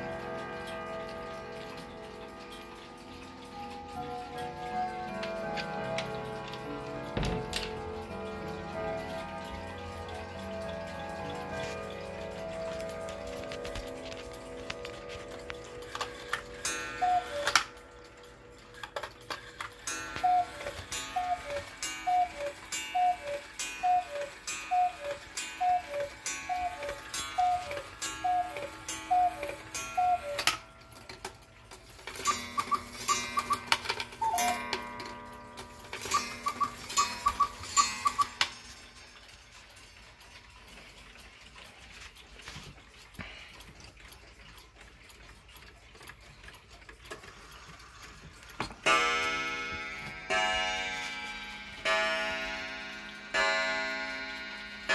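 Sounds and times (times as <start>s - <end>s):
wall clock gong strike: 0.0s - 18.5s, 19.8s - 30.6s, 48.8s - 54.9s
cuckoo clock calls: 0.0s - 42.6s, 44.0s - 54.9s
clock ticking: 0.0s - 54.9s
higher cuckoo clock notes: 0.0s - 54.9s.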